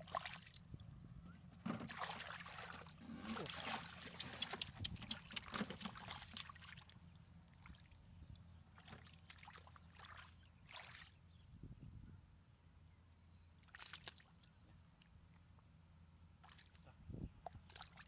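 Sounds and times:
splashing in muddy water: 0.0s - 0.7s, 1.6s - 8.0s, 8.6s - 11.2s, 13.6s - 14.5s, 16.4s - 18.0s.

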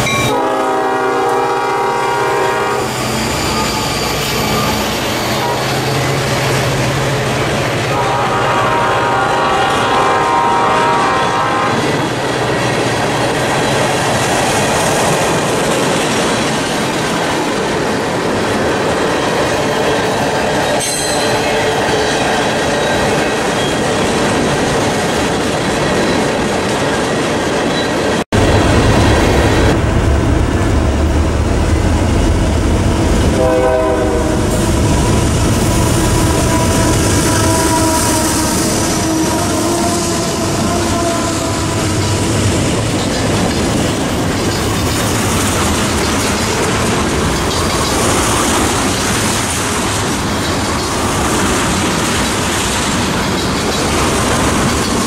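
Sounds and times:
train wheels clacking on rails: 0.0s - 55.0s
locomotive engine rumble: 28.4s - 55.0s.

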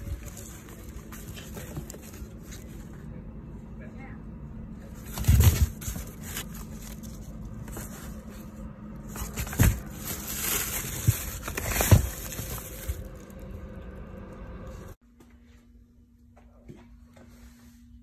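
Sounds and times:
paper rustling and scraping: 0.0s - 3.1s, 4.8s - 13.5s.

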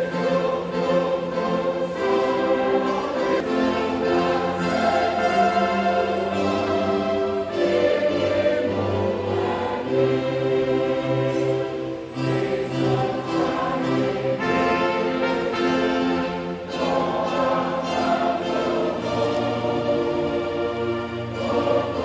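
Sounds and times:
church choir singing: 0.0s - 22.0s
instrumental accompaniment: 0.0s - 22.0s.

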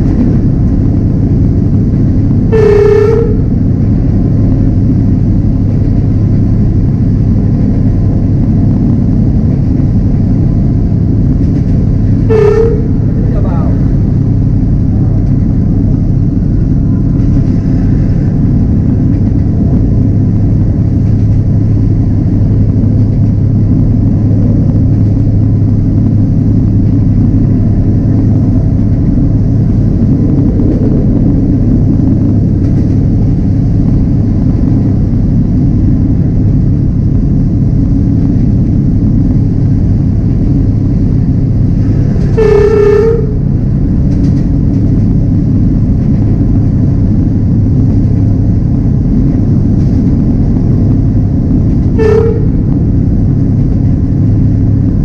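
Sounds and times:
diesel locomotive rumbling: 0.0s - 55.0s
locomotive horn blast: 2.4s - 3.8s, 12.1s - 14.2s, 42.0s - 43.7s, 51.8s - 52.8s.

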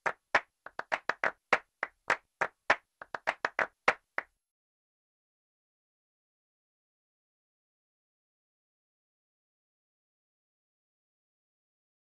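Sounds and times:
sharp clap-like clicks: 0.0s - 4.3s.

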